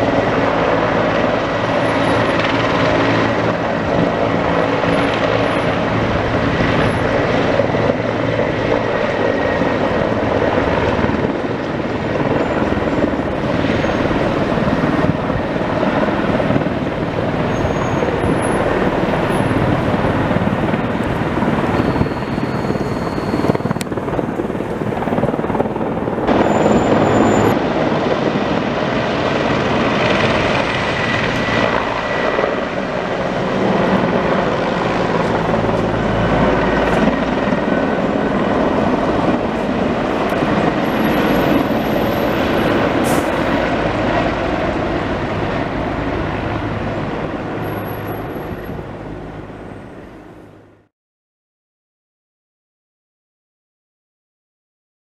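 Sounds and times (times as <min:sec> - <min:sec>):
helicopter rotor and turbine noise: 0:00.0 - 0:50.9.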